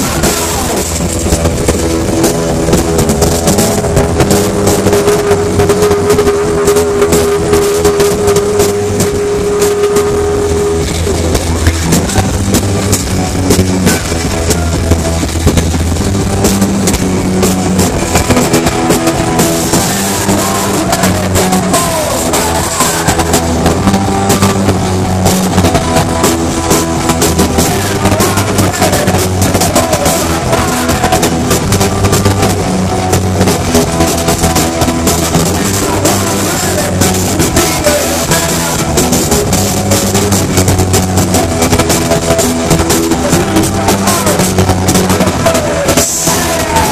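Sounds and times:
drum kit: 0.0s - 46.9s
electric guitar: 0.0s - 46.9s
live rock band playing: 0.0s - 46.9s.

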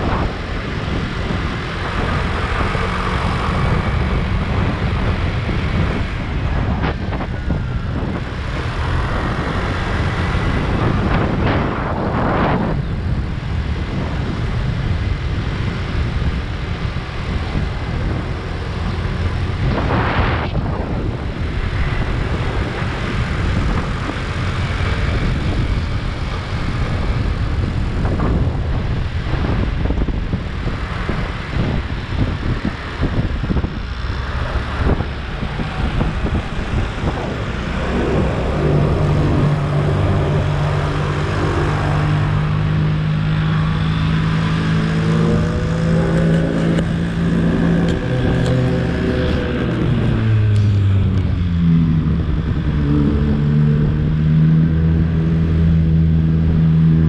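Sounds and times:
wind buffeting microphone: 0.0s - 57.0s
scooter engine: 20.7s - 57.0s.

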